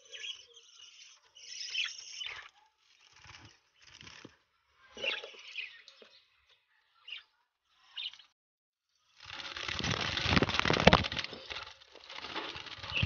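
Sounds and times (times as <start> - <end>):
rustling and scraping in nest box: 9.2 - 13.0.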